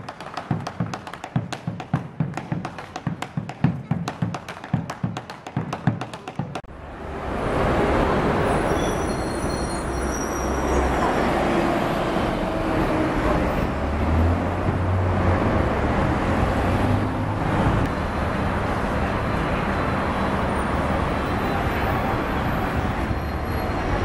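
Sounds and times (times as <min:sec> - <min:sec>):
cars and bus driving past: 0:06.7 - 0:24.0.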